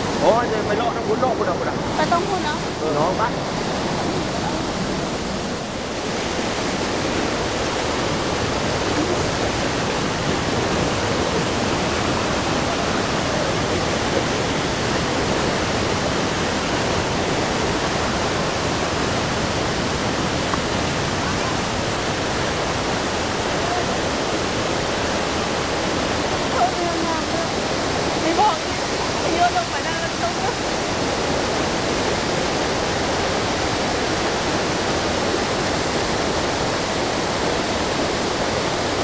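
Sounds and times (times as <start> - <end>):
waterfall rushing: 0.0 - 39.0.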